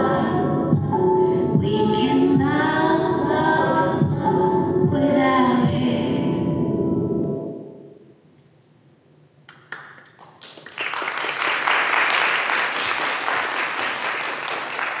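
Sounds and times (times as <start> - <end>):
audience applause: 9.7 - 15.0.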